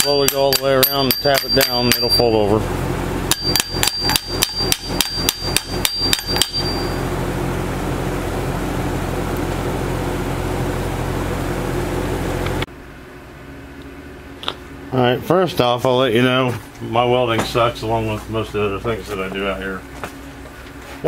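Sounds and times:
hammer tapping sheet metal: 0:00.0 - 0:02.3, 0:03.3 - 0:07.0
steady hum: 0:00.0 - 0:21.0.

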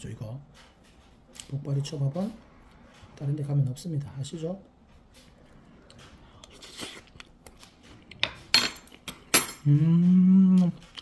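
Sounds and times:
man humming while eating: 0:09.6 - 0:11.0.

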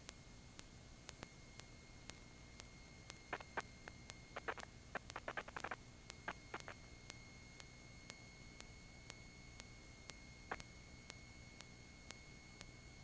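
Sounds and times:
thin electrical whine: 0:00.0 - 0:13.0
crackle bursts: 0:00.1 - 0:12.8
electrical hiss: 0:01.9 - 0:06.9
soft clicks: 0:04.4 - 0:06.8.

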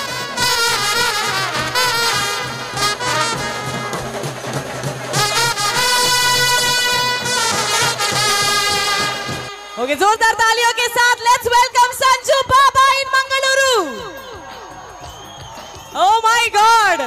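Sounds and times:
brass music: 0:00.0 - 0:10.5.

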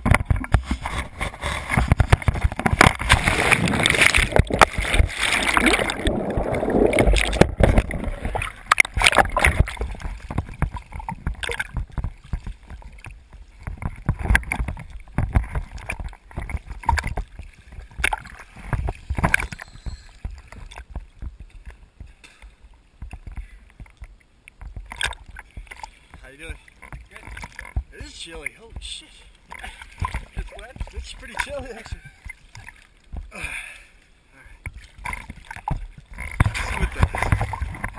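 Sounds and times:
water rushing: 0:00.0 - 0:21.8, 0:24.8 - 0:33.2
small waves splashing and knocking: 0:00.0 - 0:37.9.

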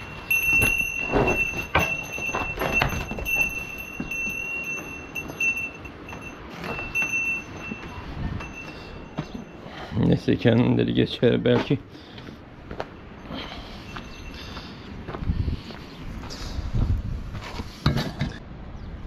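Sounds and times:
livestock bells jangling: 0:00.0 - 0:10.6, 0:13.0 - 0:14.9.

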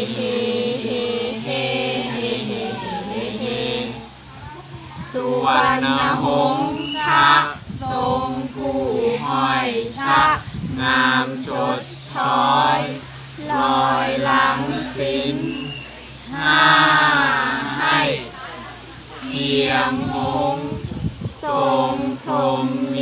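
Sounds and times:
group chanting in unison: 0:00.0 - 0:23.0.

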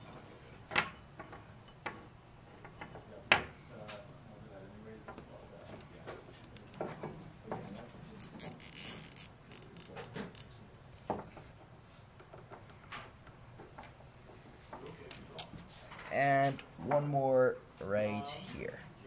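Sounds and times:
zip tie ratcheting: 0:08.2 - 0:10.5.

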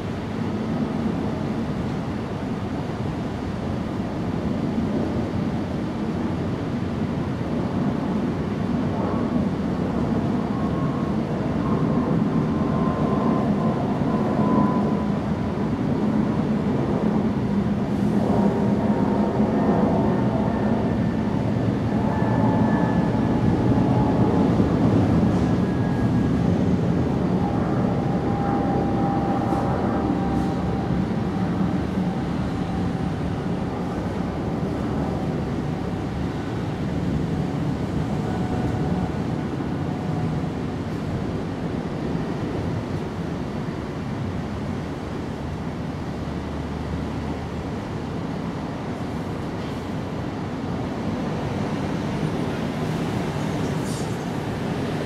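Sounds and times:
faint whining tones: 0:19.2 - 0:40.5.

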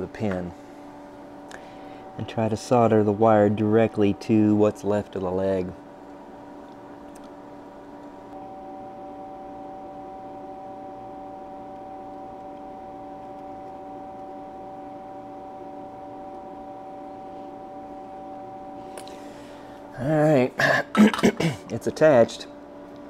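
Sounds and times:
higher machine tone: 0:00.0 - 0:06.0, 0:08.3 - 0:20.5
steady machine hum: 0:00.0 - 0:23.0.

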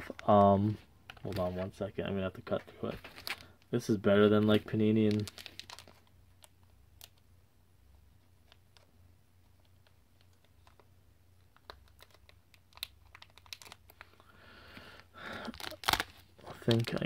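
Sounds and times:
foil pack crinkling and clicking: 0:04.9 - 0:07.2, 0:11.5 - 0:14.3, 0:15.4 - 0:17.0.

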